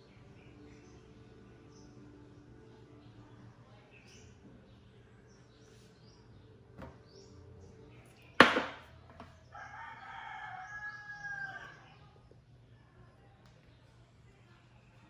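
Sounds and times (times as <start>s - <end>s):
rooster crowing: 9.5s - 11.8s.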